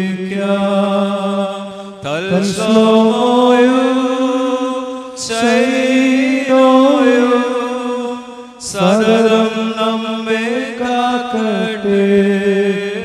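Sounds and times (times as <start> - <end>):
slow liturgical chant: 0.0 - 13.0.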